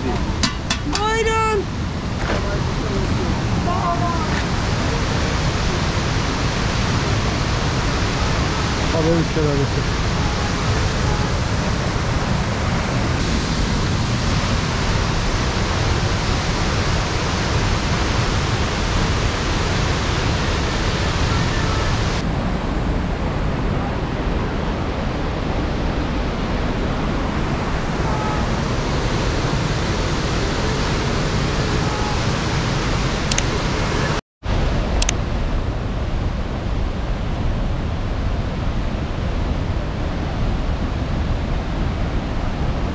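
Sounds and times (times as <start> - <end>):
waterfall rushing: 0.0 - 25.1, 25.8 - 36.0.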